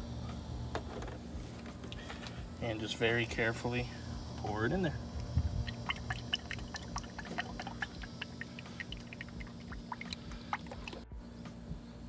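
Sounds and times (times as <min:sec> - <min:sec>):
oil glugging through funnel: 0:05.0 - 0:11.0.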